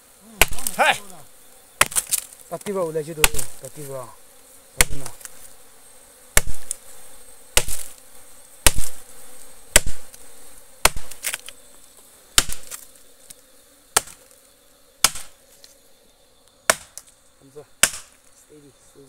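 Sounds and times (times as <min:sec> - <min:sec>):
bees buzzing: 0:00.0 - 0:19.0
blade chopping into tree trunk: 0:00.3 - 0:01.1, 0:01.8 - 0:03.7, 0:04.8 - 0:05.4, 0:06.3 - 0:06.8, 0:07.5 - 0:08.0, 0:08.6 - 0:09.1, 0:09.7 - 0:10.2, 0:10.8 - 0:11.5, 0:12.3 - 0:12.9, 0:13.9 - 0:14.4, 0:15.0 - 0:15.4, 0:16.7 - 0:17.1, 0:17.8 - 0:18.2.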